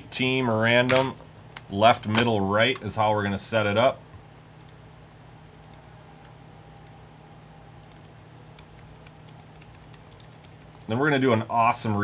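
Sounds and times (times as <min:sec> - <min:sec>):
low steady hum: 0:00.0 - 0:12.0
keyboard and mouse clicks: 0:07.8 - 0:10.9.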